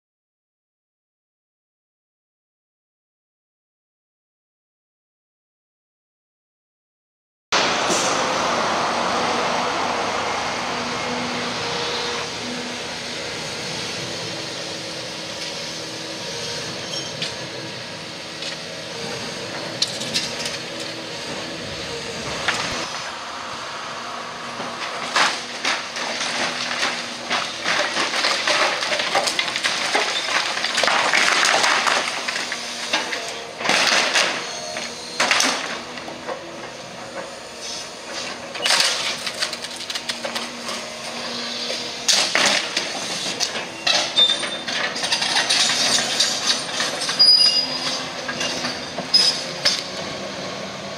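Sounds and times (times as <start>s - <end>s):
excavator engine humming: 7.6s - 50.9s
crunching and clattering rubble: 19.4s - 21.4s, 24.8s - 37.3s, 38.1s - 50.1s.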